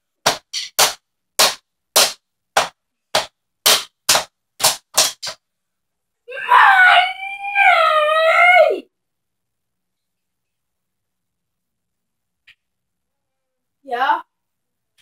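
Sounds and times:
drumsticks tapping rubber pads: 0.2s - 5.4s.

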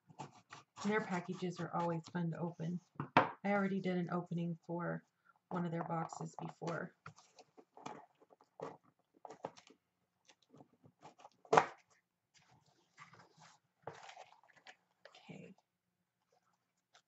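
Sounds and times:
sharp cardboard crack: 11.4s - 11.9s.

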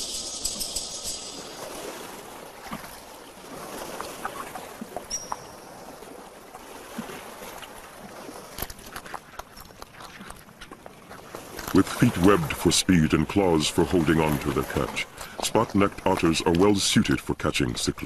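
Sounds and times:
small splashes and drips: 0.0s - 12.2s
stream water trickling among rocks: 0.0s - 18.0s.

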